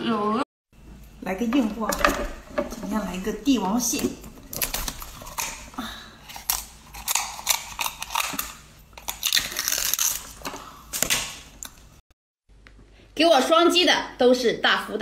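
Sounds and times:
scissors cutting crab shell: 6.3s - 10.4s.

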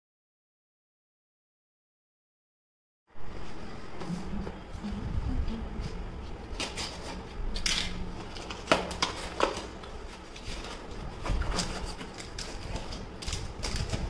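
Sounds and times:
low background rumble: 3.1s - 6.5s.

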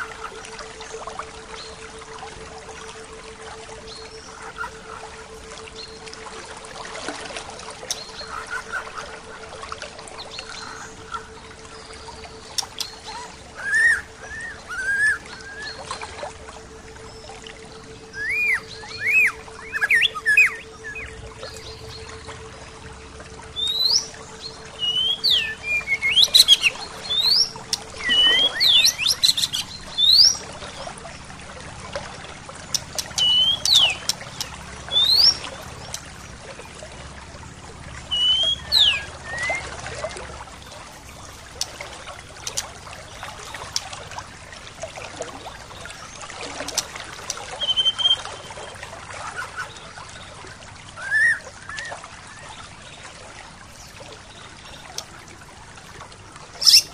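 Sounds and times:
stream water flowing: 0.0s - 56.9s
birds chirping: 7.6s - 44.4s, 45.6s - 53.0s, 56.5s - 56.9s.

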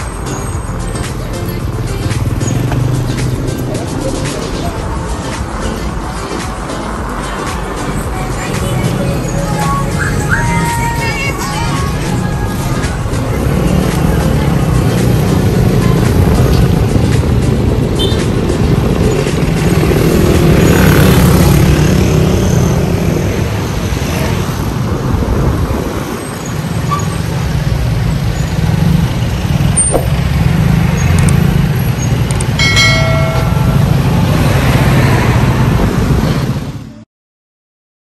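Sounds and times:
road noise: 0.0s - 37.0s
wind rumble on microphone: 22.9s - 26.6s, 34.2s - 36.8s.

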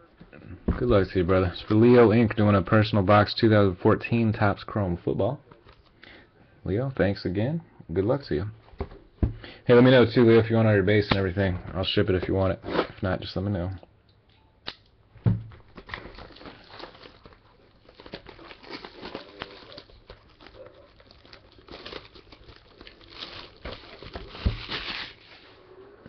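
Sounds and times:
plastic wrap tearing and crinkling: 15.6s - 25.6s.

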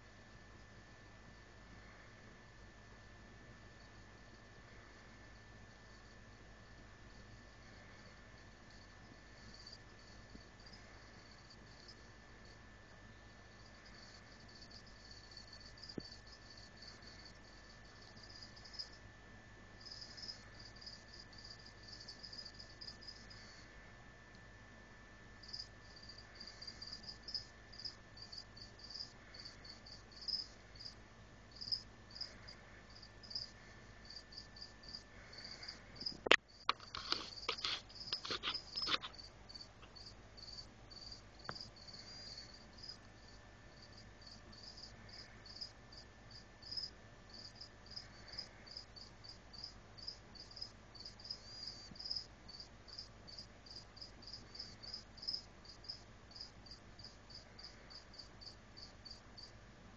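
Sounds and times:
cricket chirping: 7.1s - 19.1s, 19.8s - 23.8s, 25.4s - 59.6s.

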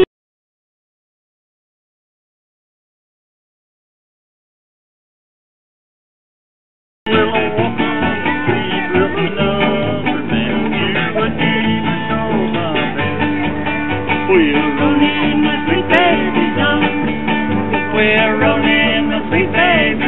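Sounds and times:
person singing: 7.1s - 13.5s, 14.2s - 20.0s
country music with guitar: 7.1s - 20.0s.

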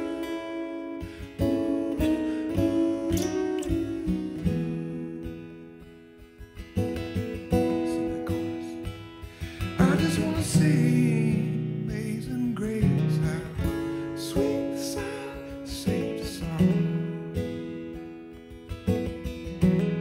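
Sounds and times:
person singing: 0.0s - 5.7s, 7.5s - 9.0s, 9.6s - 17.3s
acoustic guitar strumming: 0.0s - 20.0s.

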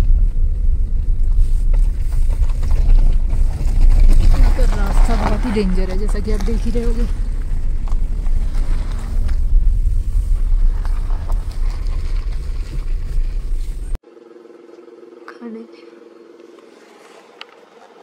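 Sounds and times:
car driving rumble inside cabin: 0.0s - 14.0s
faint steady hum: 0.0s - 18.0s.

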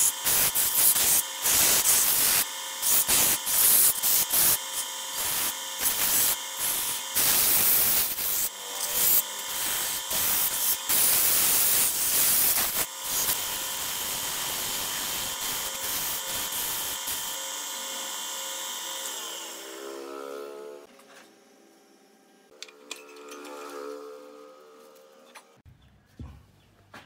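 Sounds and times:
sandpaper hissing on spinning wood: 0.0s - 18.2s
wood lathe motor hum: 1.1s - 11.0s, 12.8s - 22.3s.

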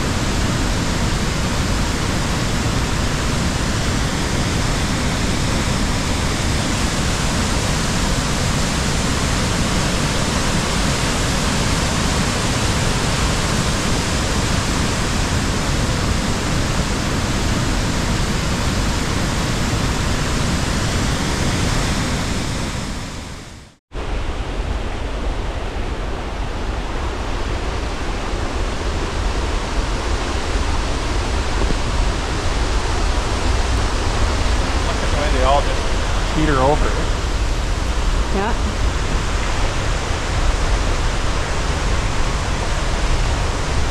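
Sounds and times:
deep rough rushing noise: 0.0s - 43.9s
waterfall rushing: 28.6s - 43.9s.

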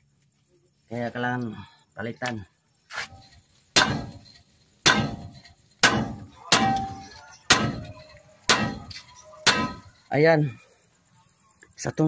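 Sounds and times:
hammer striking metal: 3.1s - 10.1s.

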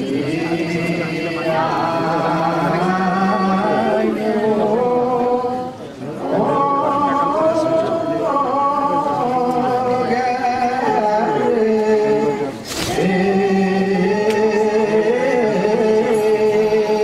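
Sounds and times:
voices chanting through microphones: 0.0s - 17.0s.

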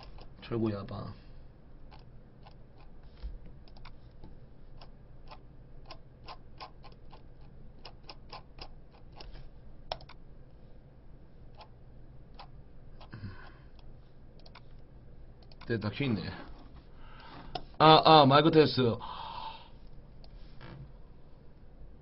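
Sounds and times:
low steady hum: 0.0s - 22.0s
keyboard and mouse clicking: 3.6s - 4.0s, 4.8s - 10.2s, 14.4s - 14.8s, 15.4s - 15.7s.

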